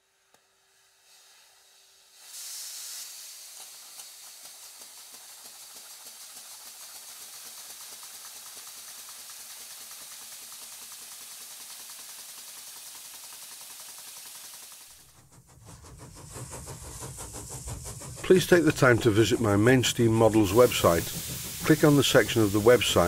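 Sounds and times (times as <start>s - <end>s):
steam hissing: 0.0s - 23.0s
steam engine exhaust beats: 0.1s - 23.0s.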